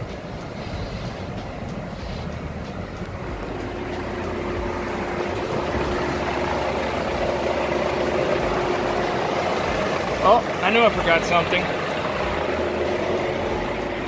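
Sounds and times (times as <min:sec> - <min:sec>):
car engine idling: 0:00.0 - 0:14.0
steady hum: 0:00.0 - 0:14.0.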